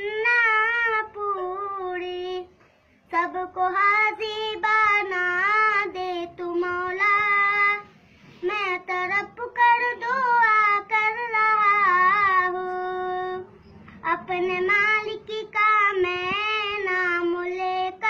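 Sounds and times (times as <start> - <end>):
boy singing unaccompanied: 0.0 - 2.5, 3.1 - 18.0.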